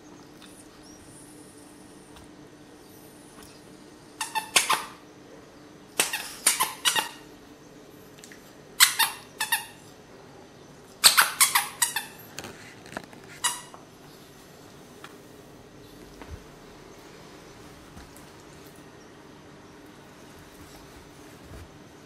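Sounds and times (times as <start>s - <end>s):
squeaky toy squeaking: 4.2s - 5.0s, 6.0s - 7.2s, 8.8s - 9.8s, 11.0s - 12.2s, 13.4s - 13.7s.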